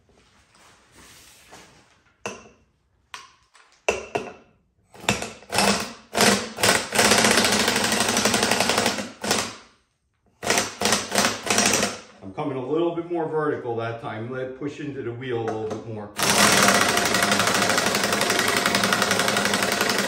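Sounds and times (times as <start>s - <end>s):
air-powered wrench hammering: 5.0s - 9.6s, 10.4s - 12.1s, 16.2s - 20.0s.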